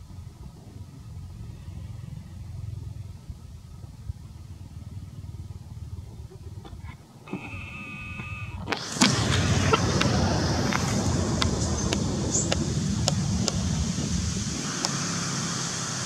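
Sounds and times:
low rumble: 0:08.6 - 0:15.7.

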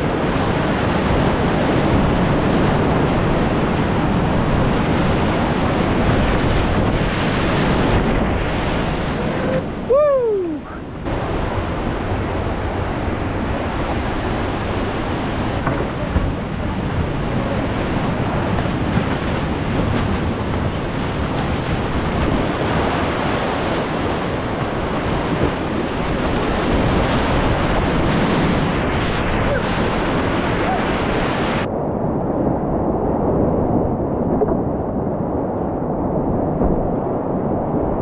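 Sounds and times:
water splashing over boat: 0:00.0 - 0:31.7
whitewater rapids rushing: 0:08.6 - 0:28.6.

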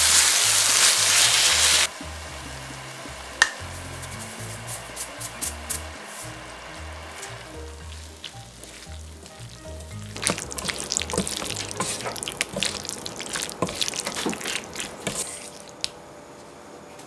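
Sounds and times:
food sizzling in a frying pan: 0:00.0 - 0:15.8
soft background music: 0:01.9 - 0:14.8
spatulas scraping a pan: 0:10.1 - 0:15.8.

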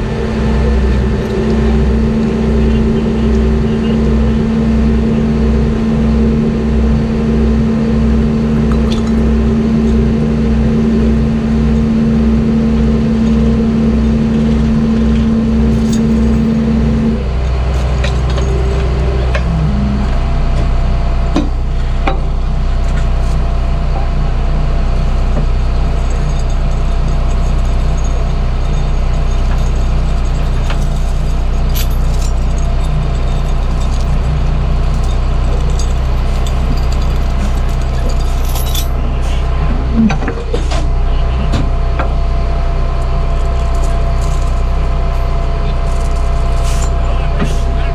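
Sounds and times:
diesel engine running: 0:00.0 - 0:47.9
steady hum: 0:00.0 - 0:47.9
light metal clinks: 0:26.0 - 0:38.9.

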